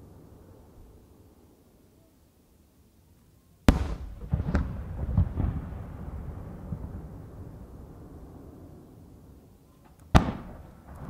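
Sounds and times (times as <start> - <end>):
firework bursts rumbling echo: 3.7 - 11.0.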